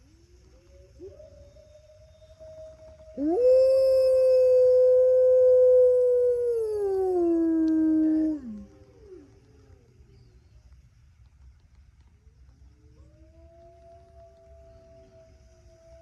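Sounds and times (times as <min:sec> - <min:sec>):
distant wolves howling: 0:00.3 - 0:09.8, 0:12.9 - 0:16.0
wolf howling: 0:00.7 - 0:09.4, 0:12.9 - 0:16.0.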